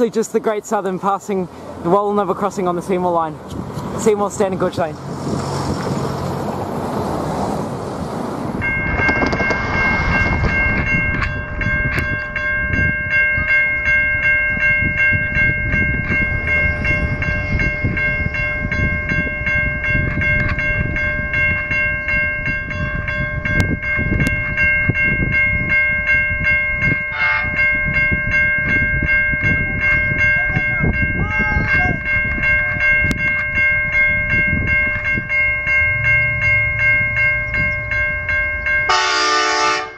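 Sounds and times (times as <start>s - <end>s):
train cars rolling past: 0.0s - 39.6s
level crossing warning bell: 8.6s - 39.9s.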